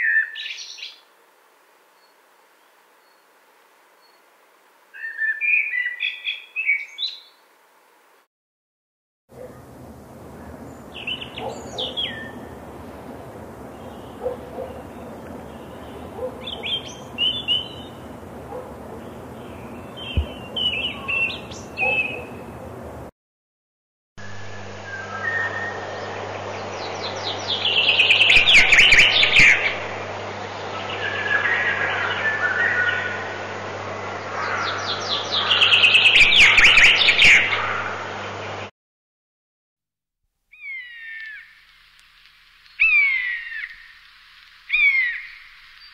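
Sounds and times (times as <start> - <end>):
chaffinch song: 0.0 - 1.1, 4.9 - 7.4, 9.3 - 23.1, 24.2 - 38.7, 40.5 - 45.9
robin singing: 9.4 - 12.8, 13.6 - 22.8, 24.8 - 29.8, 40.5 - 41.5, 44.7 - 45.9.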